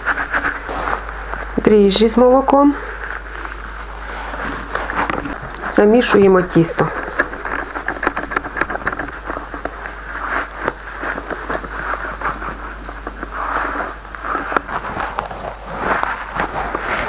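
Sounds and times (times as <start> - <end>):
spatula stirring dough in glass bowl: 3.6 - 17.0.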